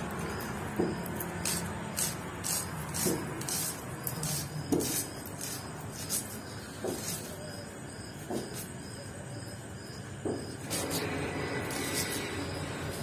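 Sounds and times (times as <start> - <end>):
onion being sliced on blade: 0.3 - 7.6
dull knocks on wooden block: 0.8 - 1.0, 8.2 - 8.6, 10.2 - 10.6.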